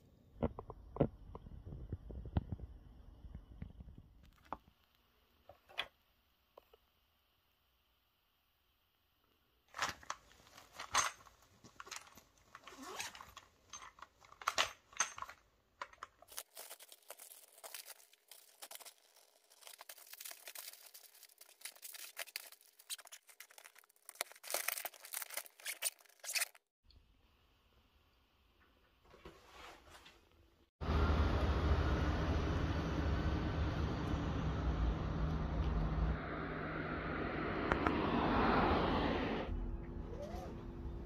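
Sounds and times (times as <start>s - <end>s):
rustling and crinkling of packing: 9.7s - 26.7s.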